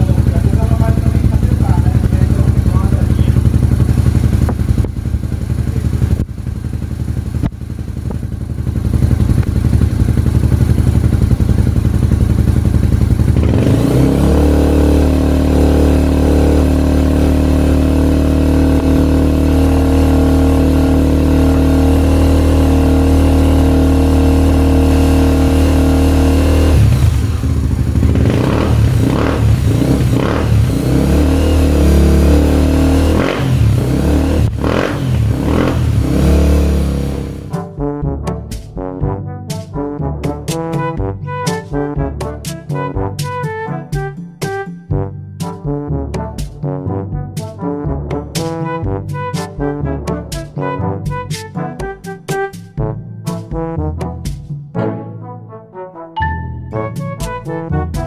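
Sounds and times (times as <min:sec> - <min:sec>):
motorcycle engine revving: 0:00.0 - 0:37.6.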